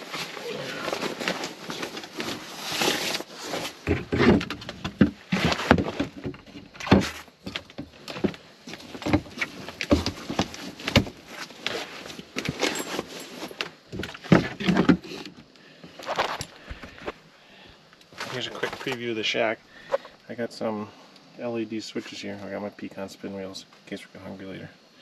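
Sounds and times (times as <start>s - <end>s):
clothing rustling: 0.0s - 4.2s, 8.7s - 13.7s.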